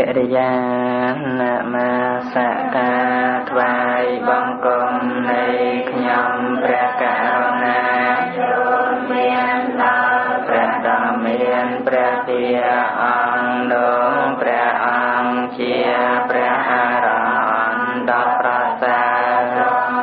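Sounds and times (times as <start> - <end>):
person chanting: 0.0 - 20.0.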